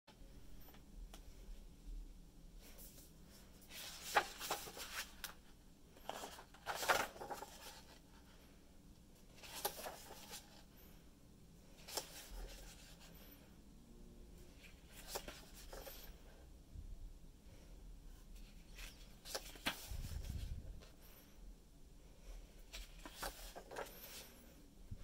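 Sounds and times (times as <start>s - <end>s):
book pages rustling: 2.7s - 5.4s, 6.0s - 8.0s, 9.3s - 10.7s, 11.8s - 13.2s, 14.6s - 16.2s, 18.4s - 20.9s, 22.7s - 24.6s.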